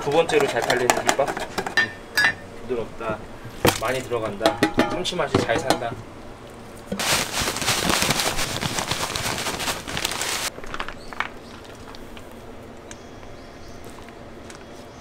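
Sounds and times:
crumbs pouring rustling hiss: 6.9s - 12.3s.

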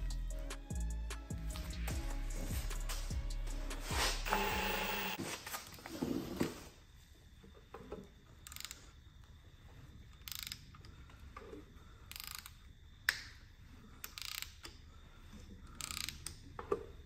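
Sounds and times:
ratchet wrench clicking: 8.4s - 8.8s, 10.2s - 10.9s, 12.1s - 13.3s, 14.0s - 14.8s, 15.7s - 16.4s.

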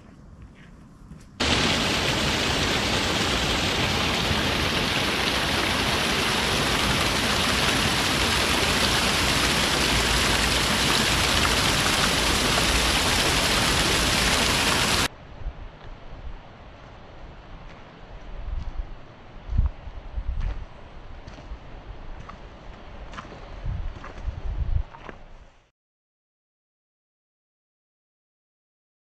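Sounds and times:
stream water splashing: 1.4s - 15.1s.

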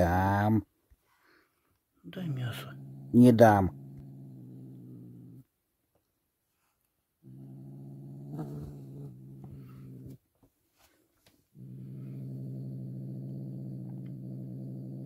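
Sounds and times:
kitten growling: 2.2s - 5.5s, 7.2s - 10.2s, 11.6s - 15.0s.

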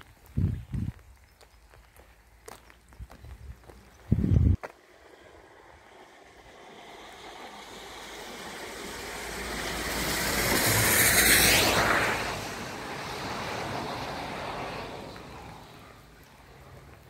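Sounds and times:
tyres hissing on wet road: 4.6s - 17.0s.

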